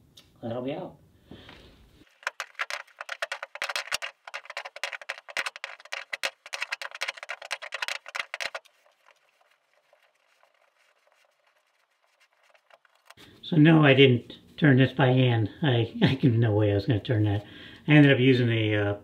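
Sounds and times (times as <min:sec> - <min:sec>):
fast clatter of wrench clicks: 0:02.1 - 0:09.3.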